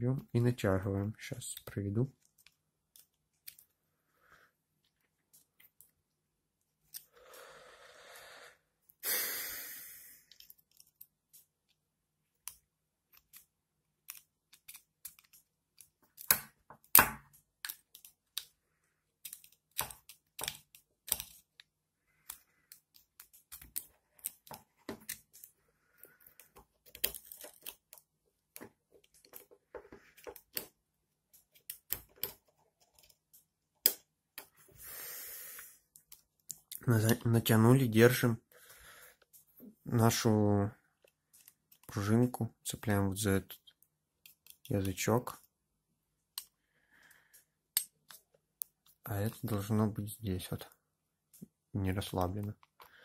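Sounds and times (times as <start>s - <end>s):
small metal and plastic clicks: 1.5s - 3.7s, 12.4s - 18.6s, 19.2s - 34.5s, 43.7s - 45.5s, 46.3s - 46.6s, 47.3s - 49.0s.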